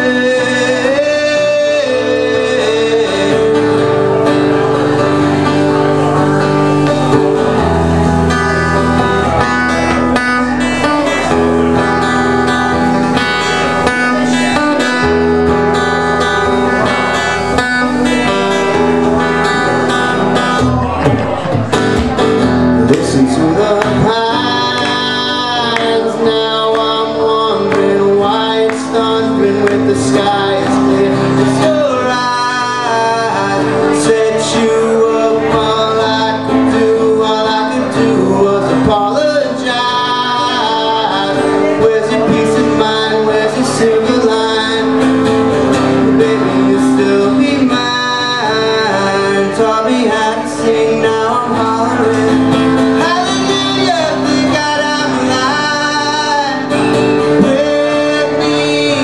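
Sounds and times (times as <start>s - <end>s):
acoustic guitar strumming: 0.0s - 59.0s
man singing: 0.0s - 59.0s.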